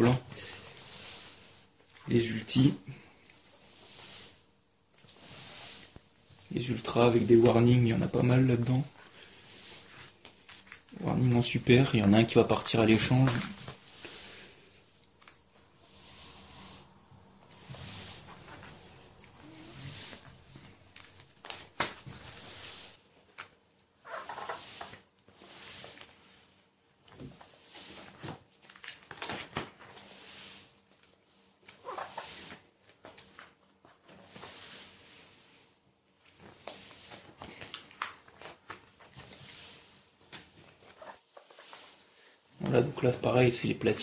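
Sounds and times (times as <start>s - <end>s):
plastic pages rustling and crinkling: 4.9s - 23.4s, 28.0s - 30.1s, 30.9s - 34.5s, 36.3s - 42.0s.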